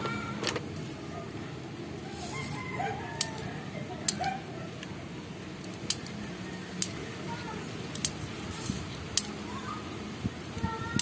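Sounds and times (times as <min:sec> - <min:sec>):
rooster crowing faintly: 0:02.0 - 0:04.4
sharp plastic clicks: 0:07.9 - 0:08.3.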